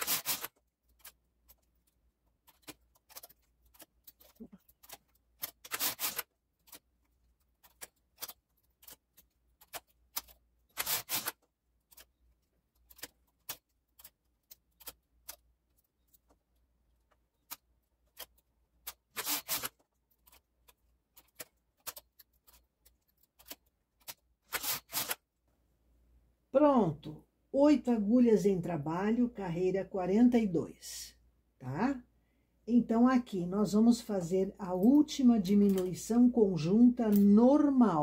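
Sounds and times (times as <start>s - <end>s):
knitting machine carriage rattle: 0.0s - 16.5s, 17.4s - 25.2s
needles and tools clicking: 0.0s - 25.2s.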